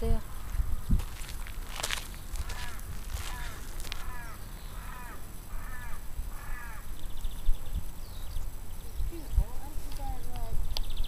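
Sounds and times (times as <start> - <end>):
bird calling: 1.9 - 11.0.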